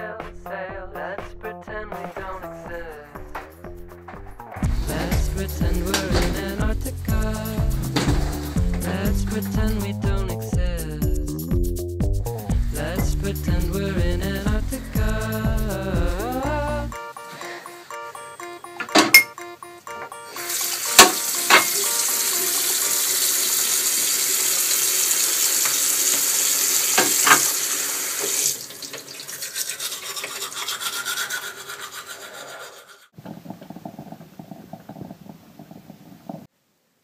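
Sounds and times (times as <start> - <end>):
scrubbing and rubbing: 4.6 - 9.6, 29.2 - 36.5
tap running into sink: 20.7 - 22.0, 25.0 - 29.2
coffee maker gurgling: 22.2 - 30.6.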